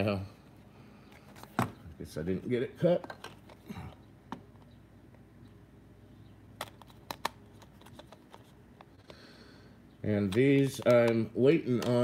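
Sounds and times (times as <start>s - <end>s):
plastic tubes clicking and tapping: 10.2s - 12.0s.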